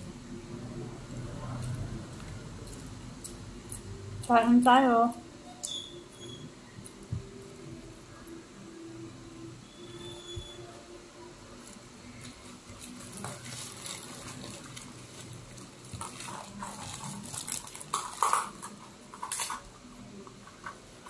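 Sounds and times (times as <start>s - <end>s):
paper wrapper crinkling: 11.6s - 21.0s.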